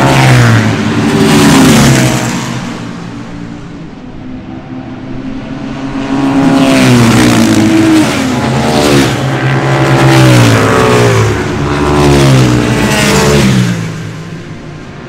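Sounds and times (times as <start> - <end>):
motorcycle engine running hard: 5.4 - 15.0.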